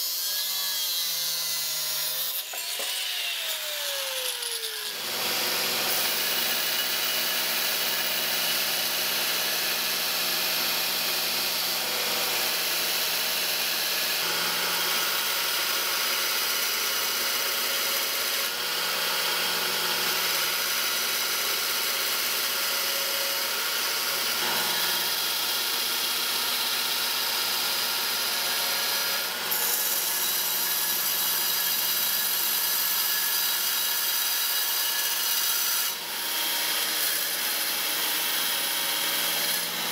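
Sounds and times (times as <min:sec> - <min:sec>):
belt grinder grinding steel: 0:01.6 - 0:18.6, 0:23.8 - 0:36.0.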